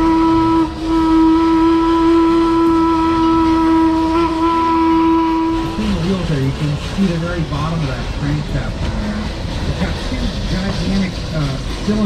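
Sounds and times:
steam whistle blowing: 0.0 - 6.1.

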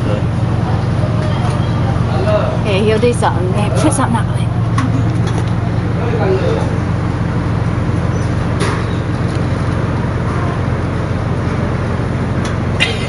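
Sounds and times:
low rumbling noise: 0.0 - 13.0.

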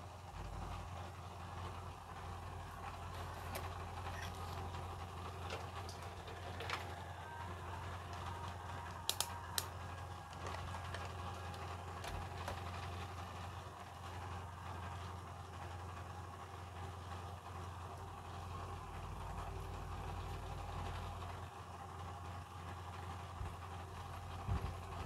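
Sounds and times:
steady low hum: 0.0 - 25.0
sharp clicks: 9.0 - 9.7.

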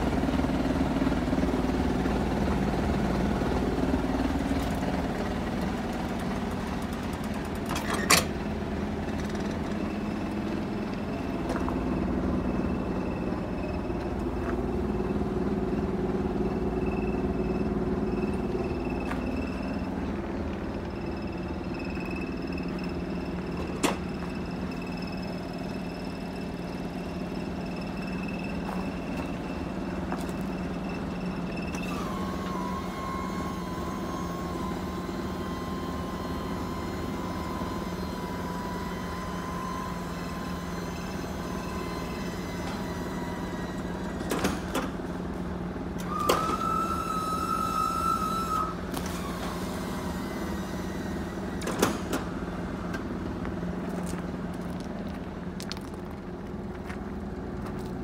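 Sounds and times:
diesel engine idling: 0.0 - 58.0
high whistling tone: 46.0 - 48.9.

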